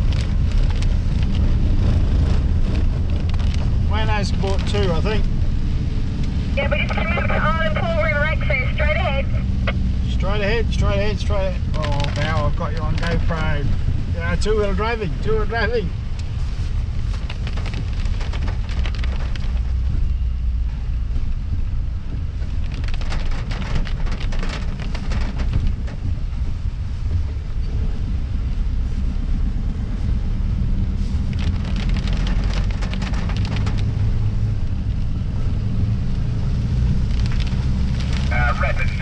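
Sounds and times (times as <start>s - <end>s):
engine and tyres droning: 0.0s - 39.0s
fast ticking and rattling: 22.4s - 26.2s, 31.2s - 34.0s.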